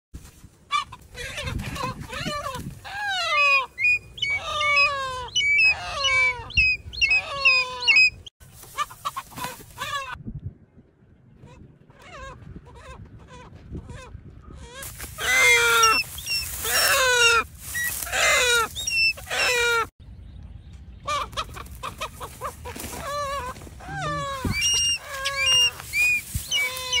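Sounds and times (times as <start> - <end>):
bird squawking: 0.7 - 10.2, 14.8 - 19.9, 21.0 - 27.0.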